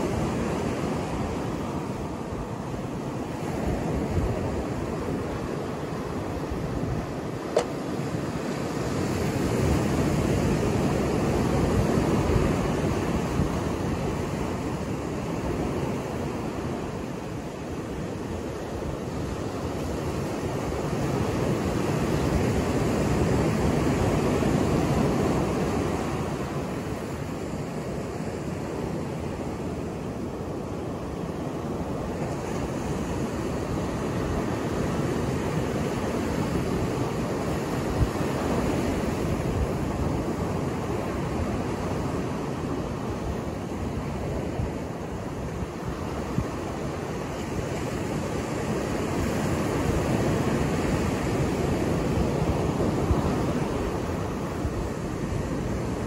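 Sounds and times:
waves breaking on beach: 0:00.0 - 0:56.0.

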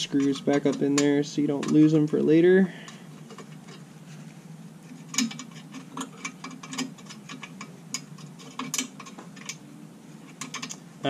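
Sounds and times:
small screws clicking against metal: 0:05.1 - 0:09.6, 0:10.2 - 0:10.8.

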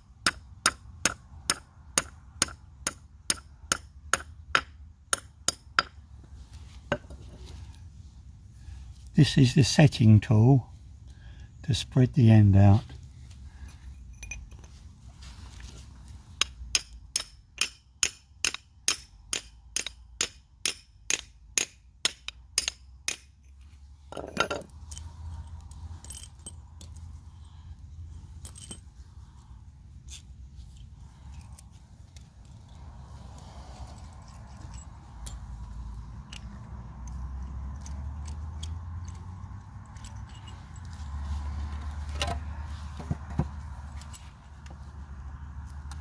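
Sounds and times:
hammer striking metal tool: 0:16.4 - 0:23.3
light clicks and scrapes: 0:30.0 - 0:44.9.

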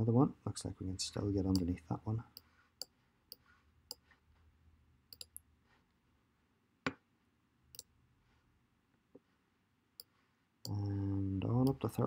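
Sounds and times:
computer mouse clicking: 0:05.1 - 0:05.4.

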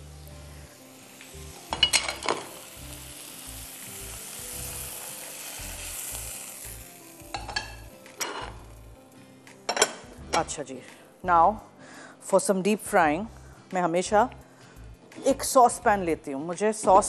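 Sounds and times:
oil sizzling in frying pan: 0:00.0 - 0:10.5.

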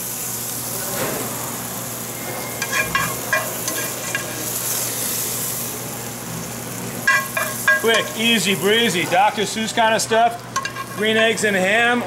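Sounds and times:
sauce sizzling in a hot pan: 0:00.0 - 0:11.7.

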